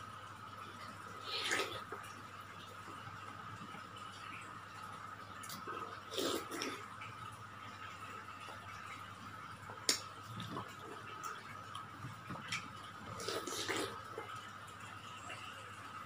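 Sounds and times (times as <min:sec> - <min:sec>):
person chewing juicy fruit: 0:09.8 - 0:14.3.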